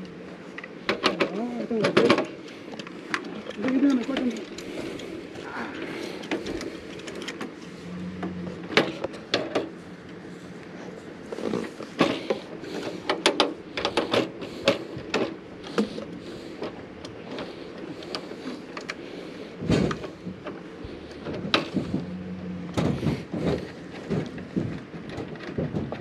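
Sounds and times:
tools being handled: 5.8 - 7.8.

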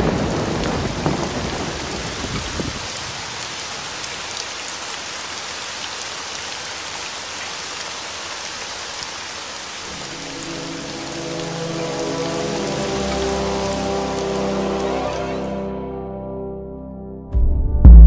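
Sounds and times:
steady rain hiss: 0.0 - 15.6
music with sustained tones: 9.9 - 17.8
low rumble: 17.4 - 18.0.

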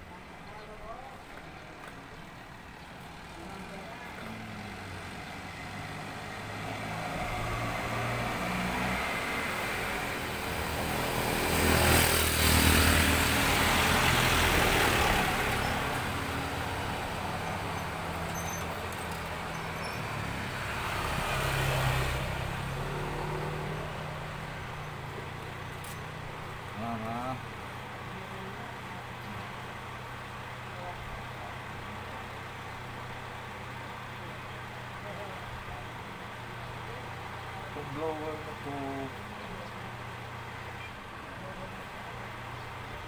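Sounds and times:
vehicle passing by: 3.3 - 30.7.

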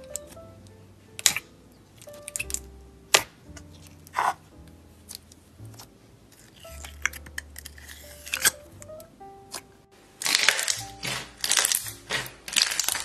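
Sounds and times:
soft background music: 0.0 - 13.0
sticky slime clicks and pops: 1.2 - 3.7, 10.2 - 13.0
crunchy slime crackles: 1.2 - 8.7, 9.5 - 13.0.

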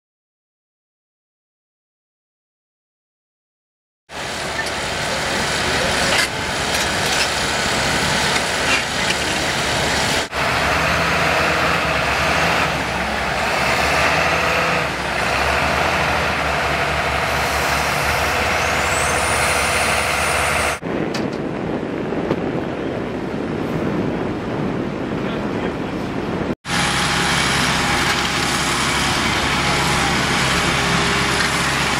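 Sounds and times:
heavy diesel engines running: 4.1 - 20.8, 25.1 - 31.9
wind: 4.1 - 31.9.

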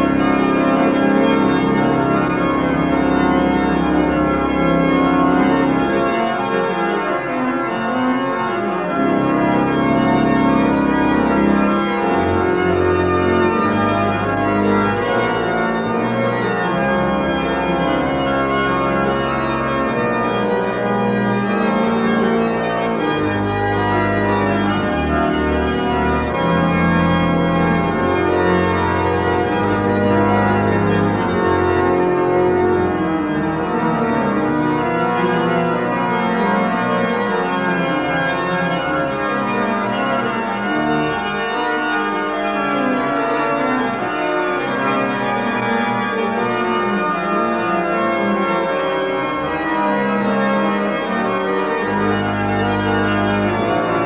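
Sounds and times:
pipe organ playing: 0.0 - 54.0.

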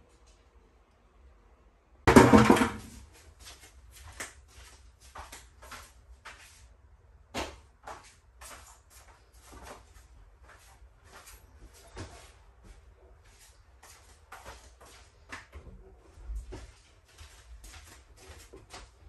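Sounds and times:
household items knocking and bumping: 2.1 - 3.0.

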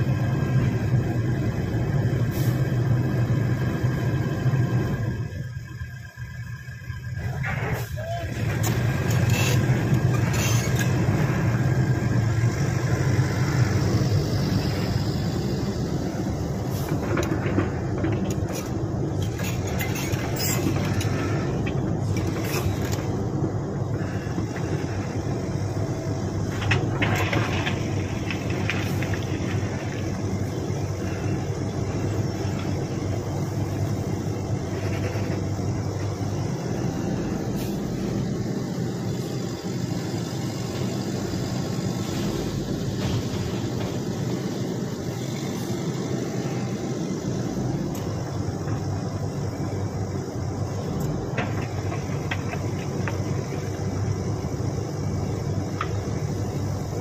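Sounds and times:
excavator diesel engine running: 0.0 - 57.0
knocks and scrapes: 16.7 - 23.2, 26.4 - 31.4, 51.2 - 53.5.

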